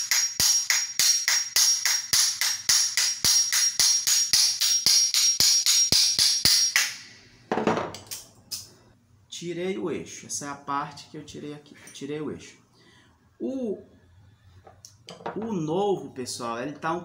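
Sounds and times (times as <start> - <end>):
hammer striking steel shaft: 0.0 - 7.1.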